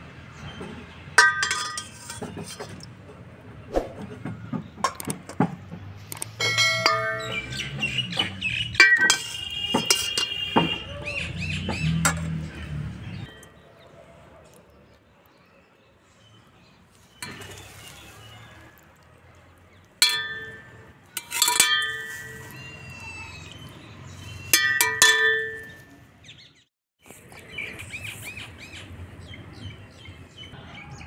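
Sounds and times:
metal serveware clinking: 1.2 - 2.7, 8.8 - 10.4, 20.0 - 22.5, 24.6 - 25.9
birds chirping: 6.8 - 20.8.

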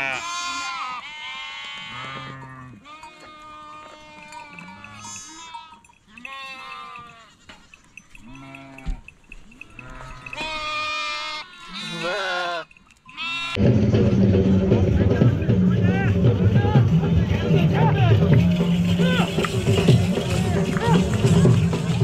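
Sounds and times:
goats or sheep bleating: 0.0 - 13.7
voices: 3.8 - 5.6, 14.2 - 22.0
loud music: 13.6 - 22.0.

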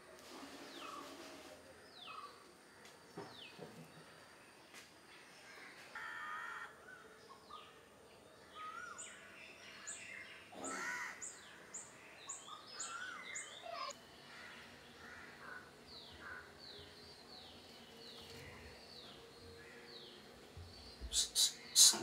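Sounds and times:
crow cawing: 5.5 - 6.8, 10.6 - 11.4, 13.8 - 16.5
small birds chirping: 6.9 - 22.0.

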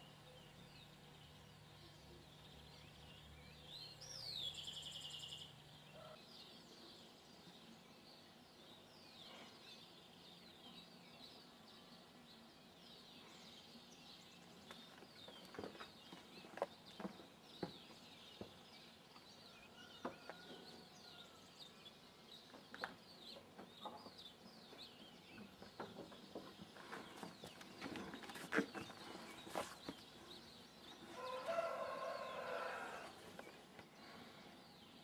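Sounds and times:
small birds chirping: 0.0 - 35.0
chicken calling: 31.1 - 33.2.

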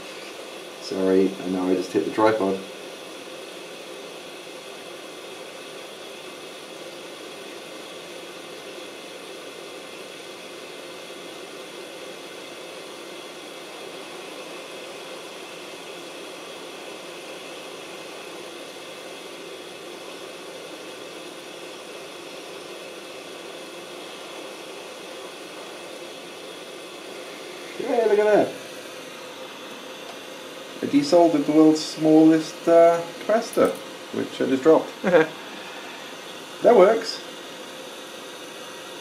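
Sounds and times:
hot air gun blowing: 10.9 - 39.0.

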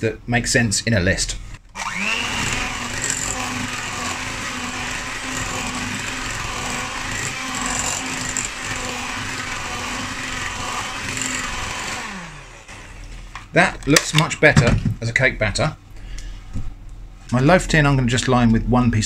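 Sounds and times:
electric hand mixer running: 1.7 - 13.2.

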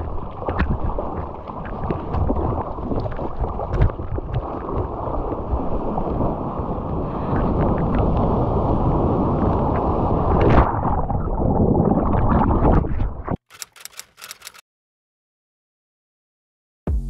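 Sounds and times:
water sloshing and splashing: 0.0 - 8.3
rush of moving water: 0.0 - 10.7.

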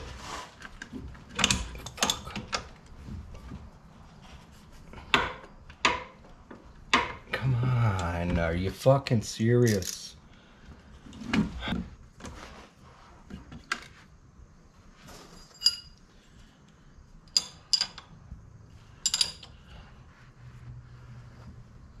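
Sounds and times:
wrench clinking against metal: 9.6 - 10.1, 15.4 - 16.0, 17.3 - 18.1, 19.0 - 19.6.

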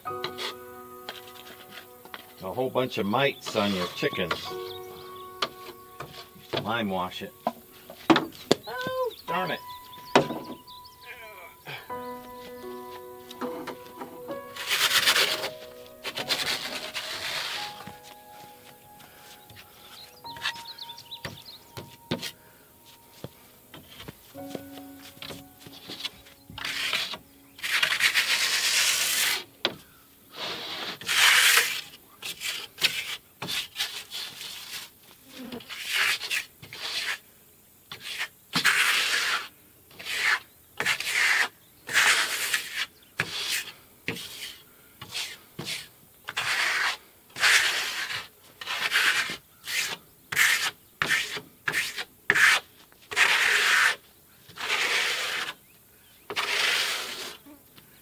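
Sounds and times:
paintbrush scratchy swishes: 3.5 - 4.7, 14.5 - 20.7, 25.0 - 29.4.

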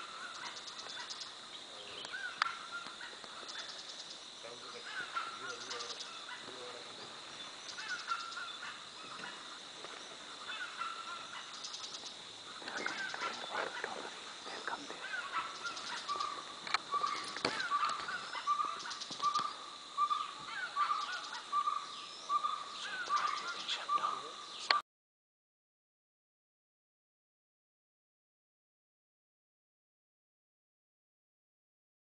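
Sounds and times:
high insect drone: 0.0 - 24.8
pulsing insect trill: 0.0 - 24.8.

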